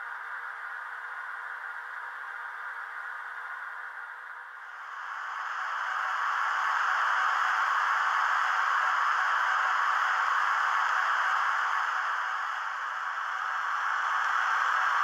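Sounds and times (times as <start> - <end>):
steady hissing of model locomotive: 4.6 - 15.0.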